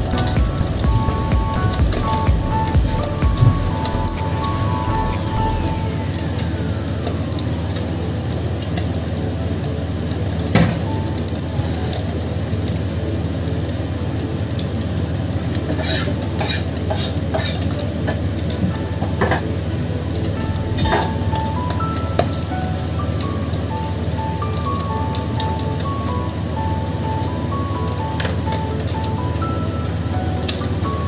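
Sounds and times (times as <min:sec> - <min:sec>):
low hum: 0:00.0 - 0:08.0
fish sizzling in hot oil: 0:05.8 - 0:29.3.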